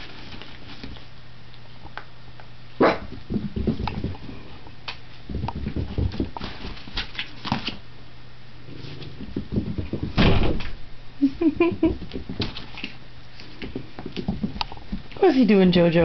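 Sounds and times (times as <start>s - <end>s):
puppy scrabbling on carpet: 2.9s - 7.8s, 8.7s - 10.2s, 11.6s - 15.6s.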